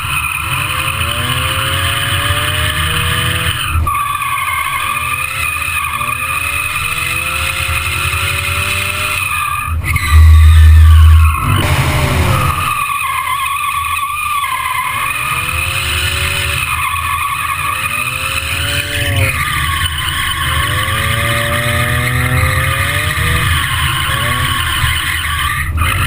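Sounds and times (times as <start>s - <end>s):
car engine revving: 0.0s - 26.0s
tyres squealing: 4.0s - 26.0s
wind rumble on microphone: 9.9s - 12.7s.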